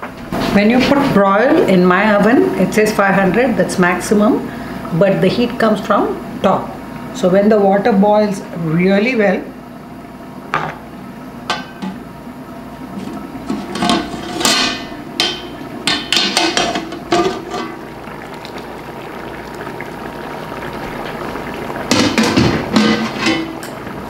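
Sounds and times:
metal lid clattering: 13.5 - 17.8, 21.9 - 23.8
utensils clinking against metal pot: 21.9 - 23.8.

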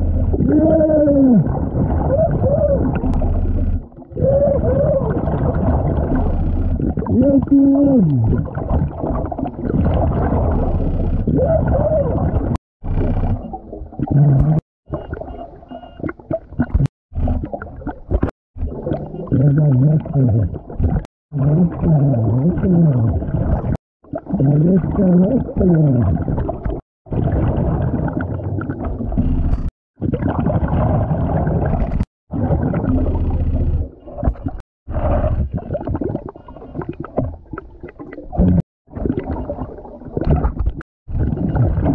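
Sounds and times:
muffled underwater noise: 0.2 - 3.4, 4.0 - 9.0.

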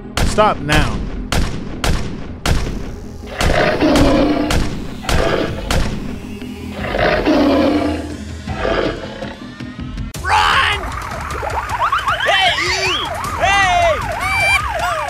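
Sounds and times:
background music: 0.0 - 15.0
pistol shots: 1.2 - 6.0
tiger roaring: 3.3 - 5.7, 6.8 - 9.4.

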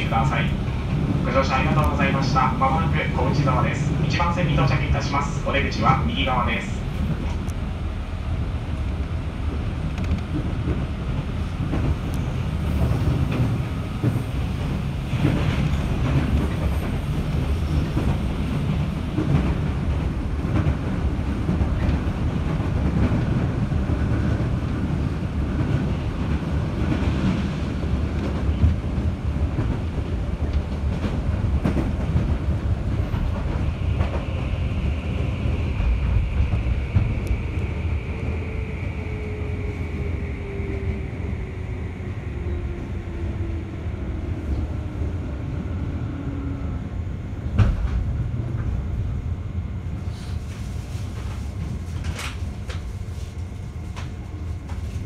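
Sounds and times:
train wheels rumbling on rails: 0.0 - 55.0
train brake whine: 50.0 - 50.6.

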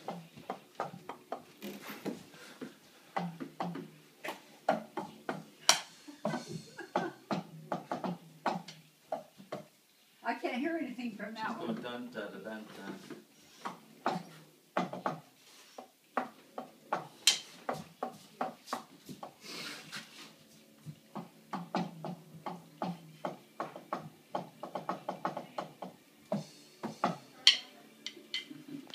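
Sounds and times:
drumsticks tapping on rubber drum pads: 0.0 - 9.7, 20.9 - 28.6.

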